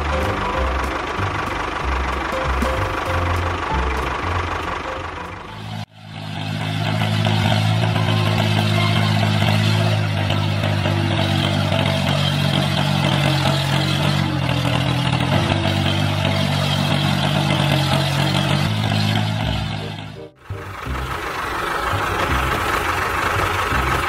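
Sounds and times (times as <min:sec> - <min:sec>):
miniature tractor engine humming: 0:00.0 - 0:05.7, 0:19.8 - 0:24.0.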